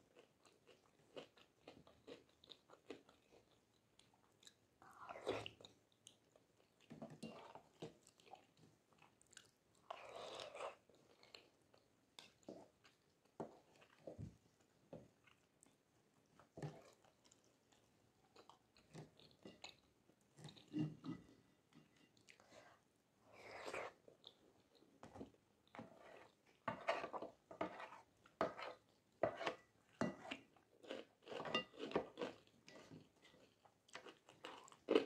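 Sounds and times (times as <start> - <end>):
chewing and mouth sounds: 0.1 - 14.1.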